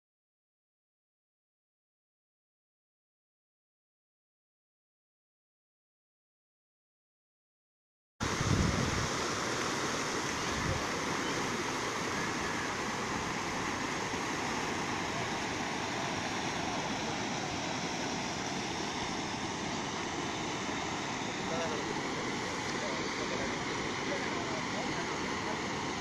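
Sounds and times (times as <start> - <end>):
river water rushing: 8.2 - 26.0.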